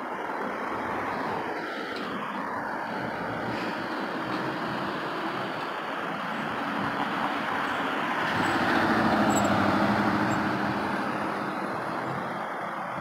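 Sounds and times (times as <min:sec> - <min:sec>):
road traffic: 0:00.0 - 0:13.0
car passing close by: 0:06.2 - 0:13.0.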